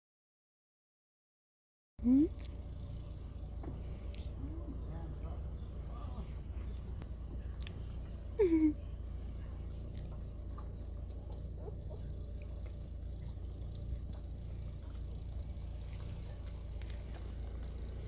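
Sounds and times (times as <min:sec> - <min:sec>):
low background rumble: 0:02.0 - 0:18.0
puppy whining: 0:08.2 - 0:08.9.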